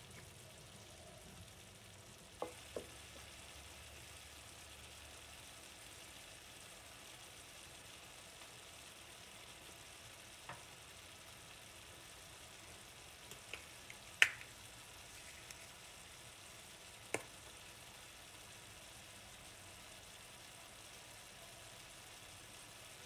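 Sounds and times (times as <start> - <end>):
sauce sizzling in a skillet: 0.0 - 23.0
sharp pops and spatters: 13.2 - 15.8, 17.1 - 17.4.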